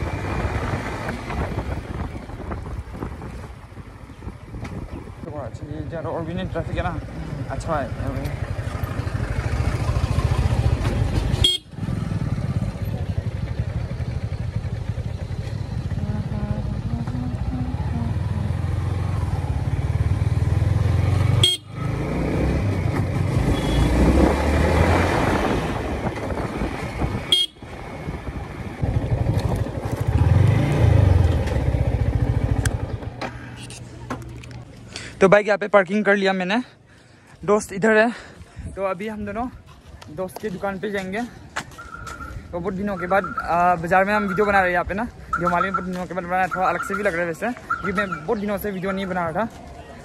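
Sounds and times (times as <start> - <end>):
motorcycle engine running: 6.3 - 24.3, 25.8 - 33.2.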